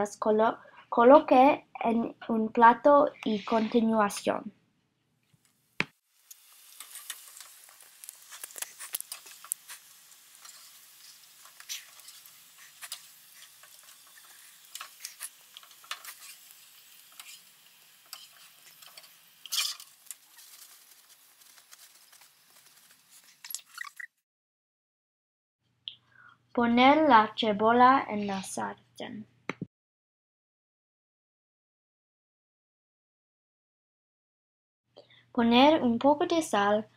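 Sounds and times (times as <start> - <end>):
crackles and pops: 5.3 - 24.2
oil sizzling in a frying pan: 5.9 - 23.8.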